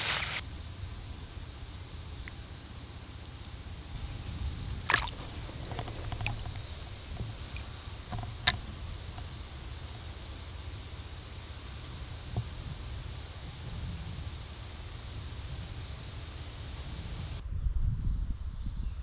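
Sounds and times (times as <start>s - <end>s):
creek water splashing: 4.0s - 10.8s.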